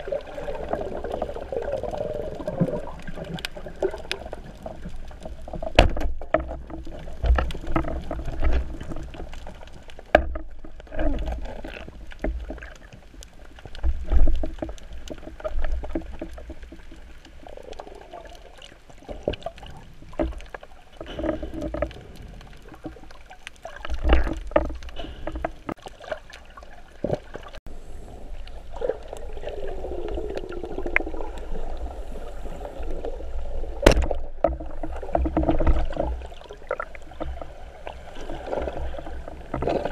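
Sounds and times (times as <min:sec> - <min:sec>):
muffled underwater rumble and gurgle: 0:00.0 - 0:39.9.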